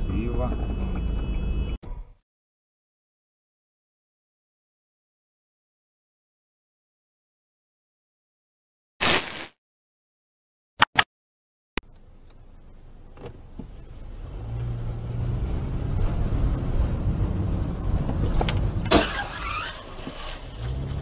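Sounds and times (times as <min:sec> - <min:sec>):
car engine and tyre hum: 0:00.0 - 0:01.8, 0:11.8 - 0:21.0.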